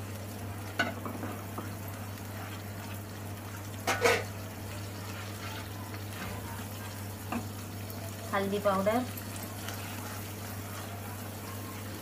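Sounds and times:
wooden spatula stirring bubbling paste: 1.3s - 7.7s, 9.1s - 12.0s.

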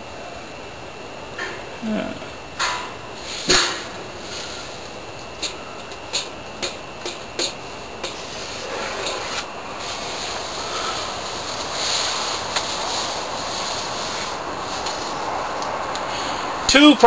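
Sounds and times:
soft rustle: 7.6s - 15.7s.

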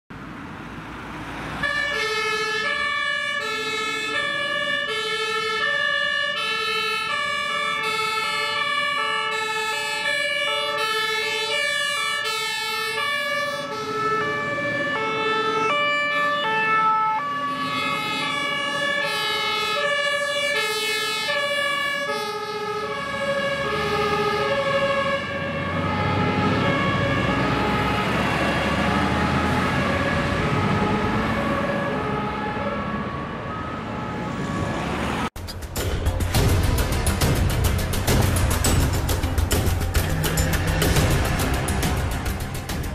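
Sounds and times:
truck engines rumbling: 0.1s - 42.9s
two-tone emergency sirens: 1.1s - 35.4s.

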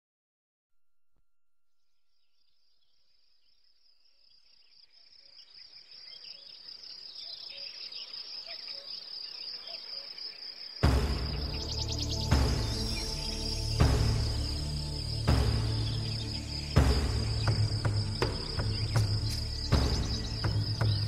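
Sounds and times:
faint chirps: 1.7s - 21.0s.

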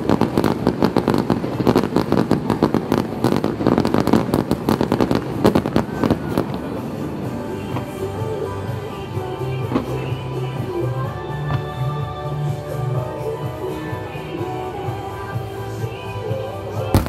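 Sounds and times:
fireworks crackling and popping: 0.0s - 8.9s, 16.8s - 17.0s.

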